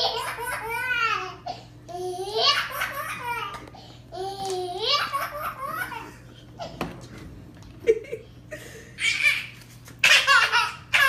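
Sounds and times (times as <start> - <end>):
baby laughing: 0.0 - 3.6, 4.2 - 6.8, 9.0 - 11.0.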